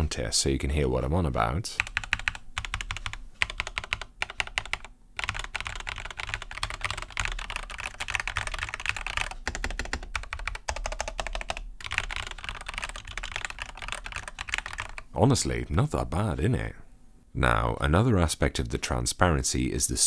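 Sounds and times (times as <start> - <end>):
mechanical keyboard typing: 1.8 - 15.0.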